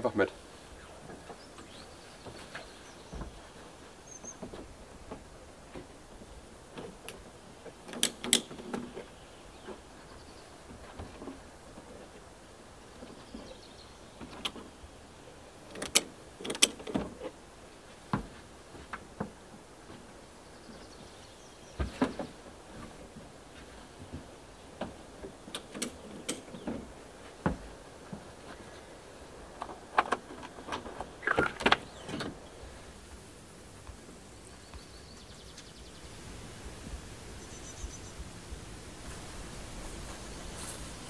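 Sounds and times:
latches and window flaps clicking: 7.8 - 9.0, 15.7 - 17.3, 25.5 - 26.9, 29.6 - 32.4.

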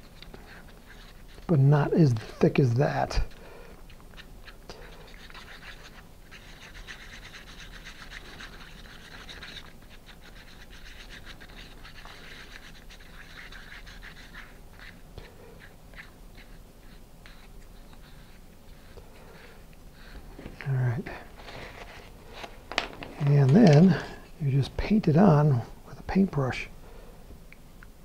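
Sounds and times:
stick scraping paste in paper cup: 4.2 - 22.6.

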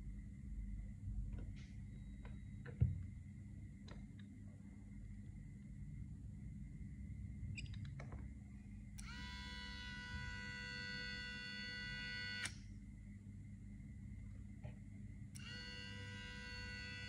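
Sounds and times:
small electric motor whining: 9.0 - 12.5, 15.4 - 17.0.

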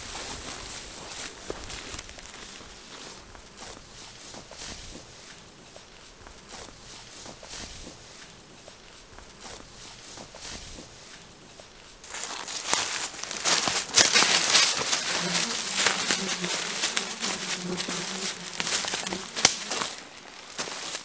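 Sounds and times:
branches and forest litter crackling: 0.0 - 3.9, 11.9 - 21.0
fly buzzing: 12.1 - 21.0.

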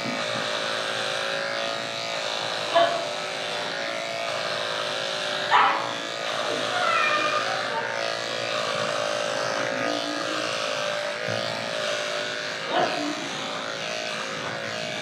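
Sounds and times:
electric clippers running: 0.0 - 15.0
dog barking: 2.7 - 3.0, 5.5 - 5.9.

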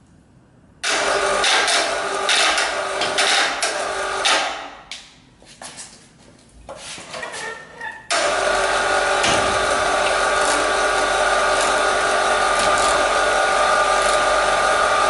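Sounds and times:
electric hoist whirring: 0.8 - 4.6, 8.1 - 15.0.

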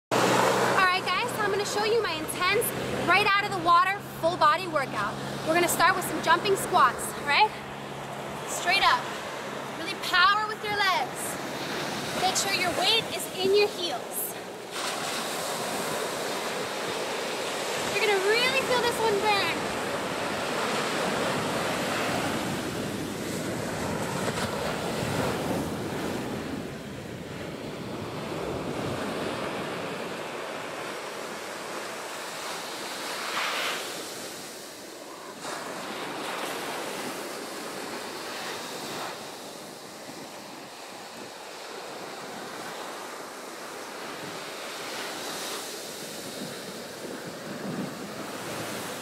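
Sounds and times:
ocean surf breaking: 0.1 - 49.0
wind buffeting microphone: 45.2 - 49.0.

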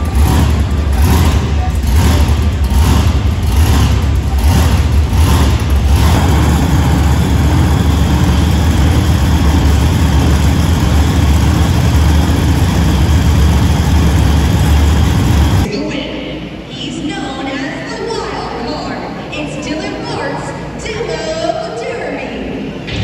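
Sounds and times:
truck engine loud idle: 0.0 - 15.7.

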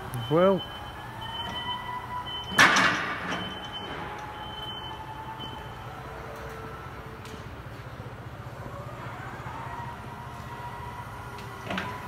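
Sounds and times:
electric forklift motor humming: 3.2 - 12.0.

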